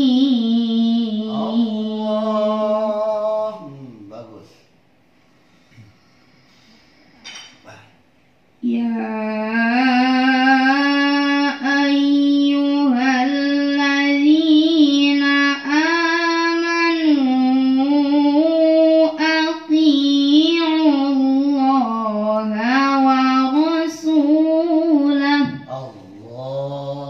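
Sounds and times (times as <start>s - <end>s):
girl chanting melodically: 0.0s - 3.6s, 8.6s - 25.8s.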